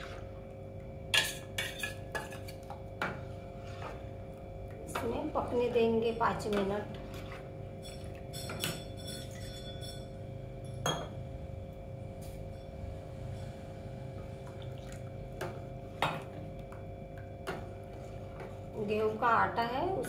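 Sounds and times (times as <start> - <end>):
steady low hum: 0.0 - 20.0
spoon clinking against saucepan: 7.8 - 11.1.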